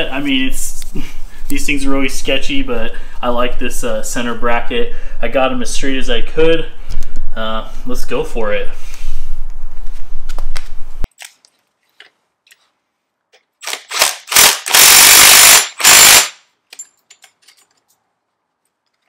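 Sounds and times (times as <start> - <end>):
impact driver hammering: 13.8 - 16.4.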